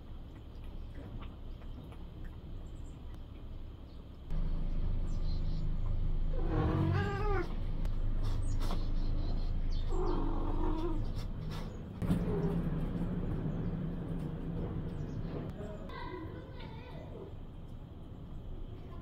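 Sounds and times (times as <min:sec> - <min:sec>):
steady low hum: 0:00.0 - 0:19.0
cat meowing: 0:06.4 - 0:07.6.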